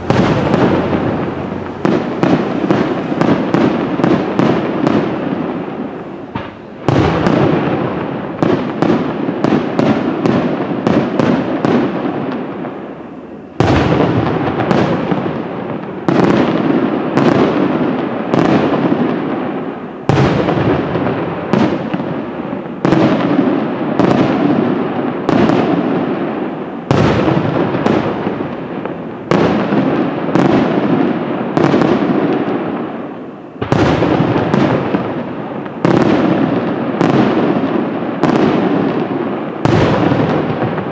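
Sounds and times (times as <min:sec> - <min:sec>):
firework shells bursting: 0:00.0 - 0:10.0.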